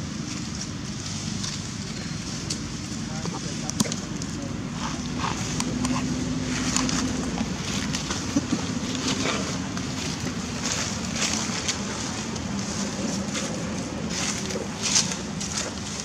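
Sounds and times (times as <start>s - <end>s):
rustling of dry leaf litter: 0.0s - 16.0s
steady low hum: 0.0s - 16.0s.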